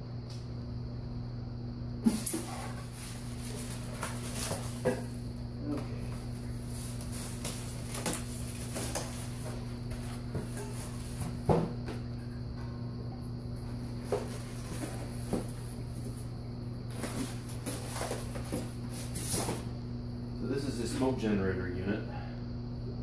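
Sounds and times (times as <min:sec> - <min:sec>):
steady low hum: 0:00.0 - 0:23.0
styrofoam packing rustling: 0:02.1 - 0:05.2, 0:06.1 - 0:11.4.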